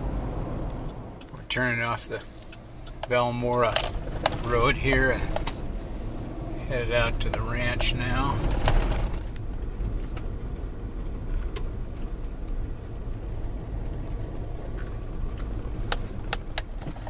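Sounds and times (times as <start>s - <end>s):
engine and tyre rumble: 0.0s - 17.0s
sharp clicks and rattles: 0.7s - 5.8s, 6.7s - 12.6s, 14.6s - 17.0s.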